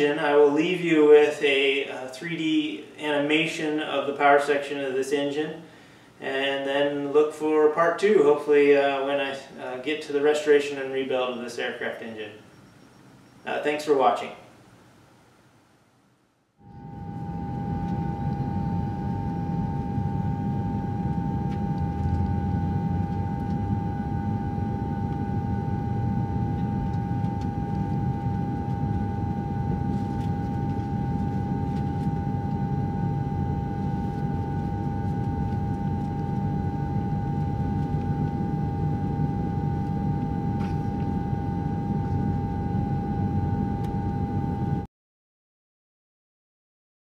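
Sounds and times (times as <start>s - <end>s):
aircraft engine running: 16.6s - 44.8s.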